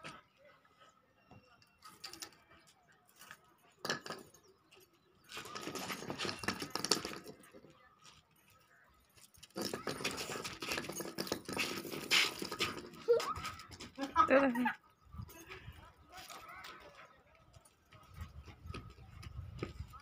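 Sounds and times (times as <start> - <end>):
metal chain lead jangling: 5.5 - 14.4.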